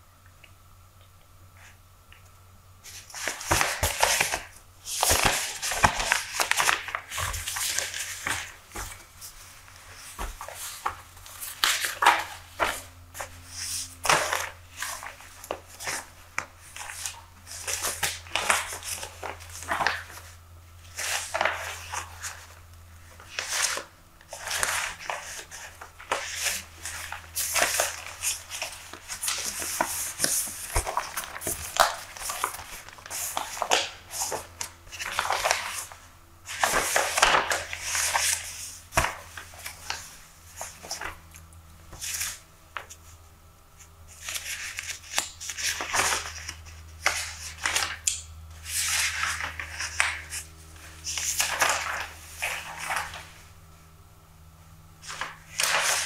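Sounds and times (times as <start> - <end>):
newspaper pages rustling: 2.8 - 43.2, 44.1 - 53.5, 55.0 - 56.0.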